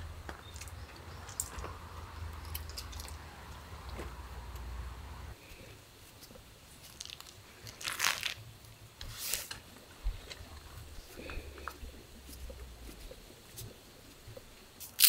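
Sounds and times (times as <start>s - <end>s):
paper and plastic rustling: 9.0s - 13.8s.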